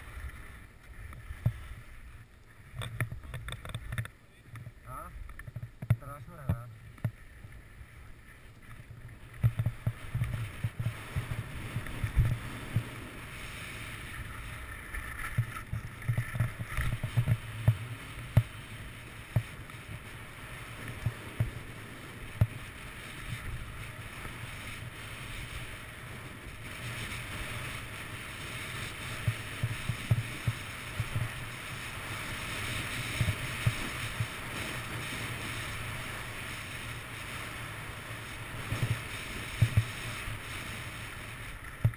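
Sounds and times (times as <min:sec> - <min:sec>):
skis scraping over snow: 0:00.0 - 0:41.9
wind rushing over camera: 0:00.0 - 0:41.9
small knocks and thumps: 0:02.7 - 0:07.2, 0:09.3 - 0:10.9.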